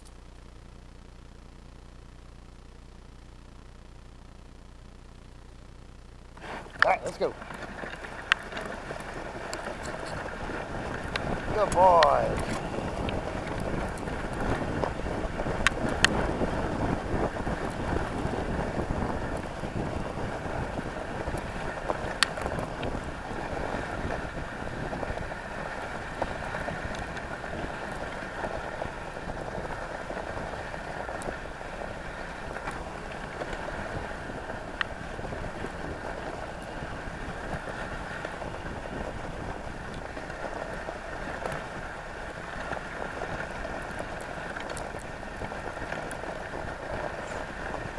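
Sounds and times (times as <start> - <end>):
sled runners hissing over snow: 6.4 - 47.9
wind on microphone: 6.4 - 47.9.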